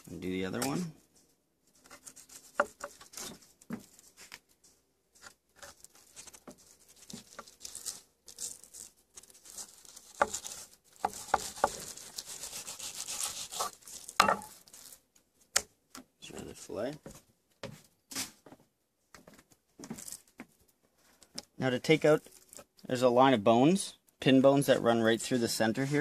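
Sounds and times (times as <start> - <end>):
knife scraping on cutting board: 10.2 - 14.5.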